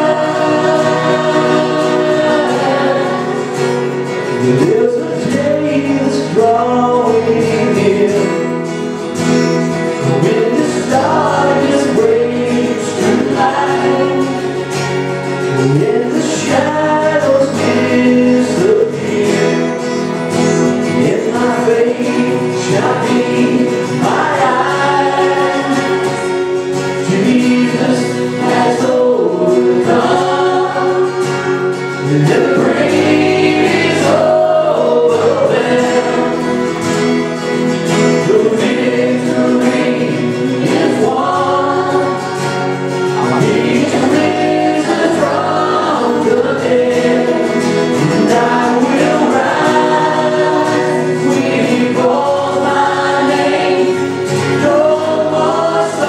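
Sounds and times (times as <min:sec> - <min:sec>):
guitar accompaniment: 0:00.0 - 0:56.0
voices singing: 0:00.0 - 0:56.0.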